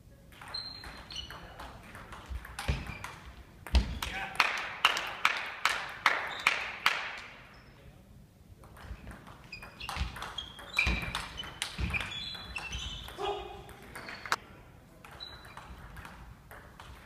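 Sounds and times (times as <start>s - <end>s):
table tennis ball bouncing: 0.3s - 4.4s, 8.6s - 14.4s, 15.0s - 17.0s
sports shoes squeaking: 0.4s - 4.1s, 6.2s - 6.6s, 7.5s - 7.9s, 8.8s - 14.4s, 15.1s - 16.3s
ball clicking off bats: 15.0s - 17.0s.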